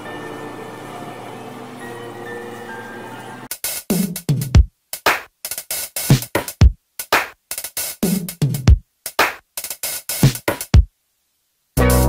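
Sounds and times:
electronic music with drum-machine beat: 3.5 - 10.9, 11.8 - 12.0.

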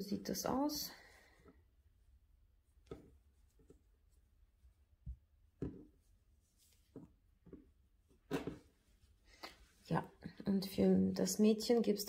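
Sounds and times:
soft knocks and rustles: 5.0 - 8.9.

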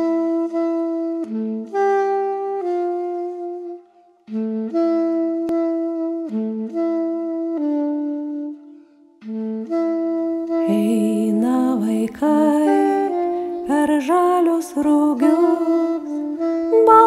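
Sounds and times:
solo saxophone melody: 0.0 - 17.0.

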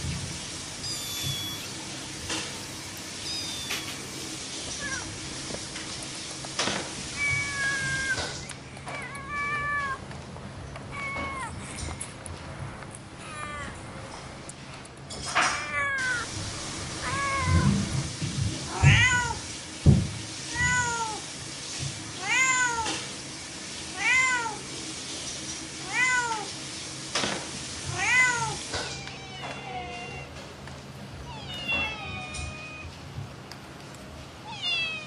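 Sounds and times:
cat meowing: 0.8 - 2.1, 3.2 - 5.2, 7.2 - 10.0, 10.9 - 11.6, 13.2 - 13.9, 15.5 - 16.3, 17.0 - 17.9, 18.7 - 19.4, 20.5 - 21.2, 22.2 - 23.1, 25.8 - 26.5, 27.9 - 30.4, 31.2 - 33.0, 34.4 - 35.0.

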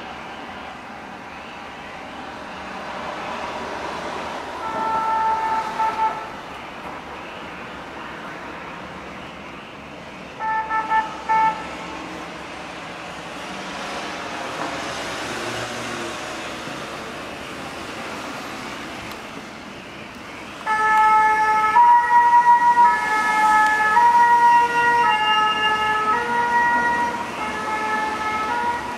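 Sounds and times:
vehicle engine and road noise: 0.0 - 28.9
two-tone siren: 4.6 - 12.0, 20.5 - 28.9.

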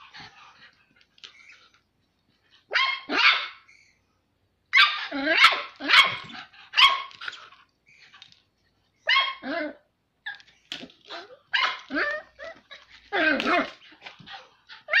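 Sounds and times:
puppy barking and yapping: 2.7 - 3.7, 4.7 - 7.5, 9.0 - 10.5, 11.1 - 15.0.

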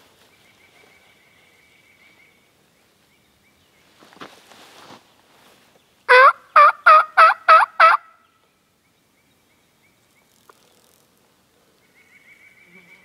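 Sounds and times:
turkey yelps on a mouth call: 6.1 - 8.1.

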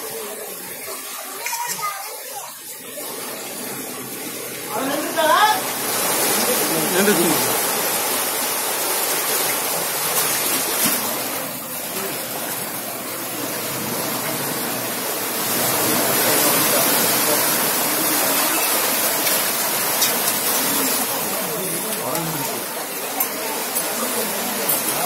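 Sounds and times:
seawater rushing and splashing: 0.0 - 25.0.

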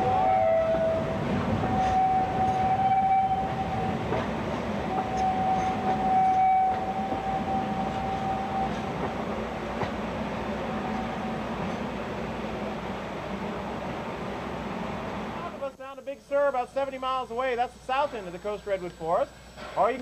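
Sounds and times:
train wheels rumbling on rails: 0.0 - 15.5
high wheel squeal: 1.7 - 4.0, 4.9 - 8.9.

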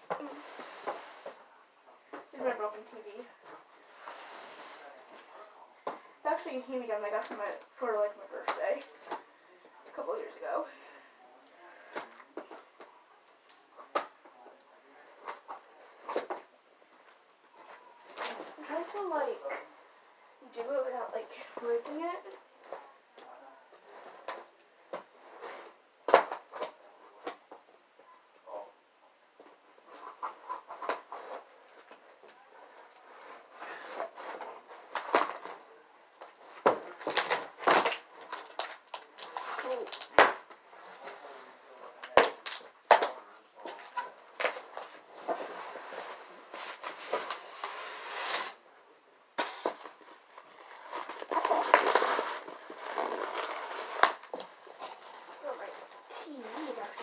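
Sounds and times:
foam and cardboard crackling and squeaking: 17.1 - 19.7, 29.8 - 48.6, 49.4 - 57.0.

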